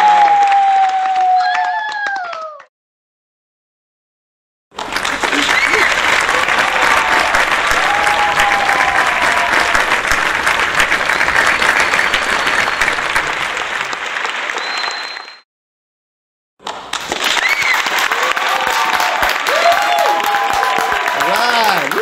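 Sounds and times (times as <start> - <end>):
crowd shouts: 0.0 - 2.4, 5.8 - 9.9, 18.1 - 22.0
crowd cheering: 0.0 - 2.7, 4.8 - 15.4, 17.0 - 22.0
crowd clapping: 0.0 - 2.7, 4.7 - 15.4, 16.6 - 22.0.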